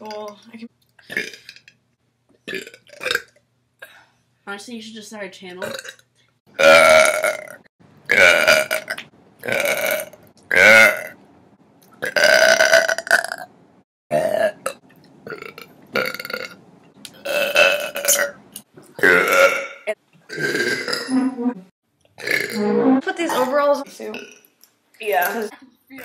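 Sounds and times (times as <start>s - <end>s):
women burping: 19.0s - 21.2s.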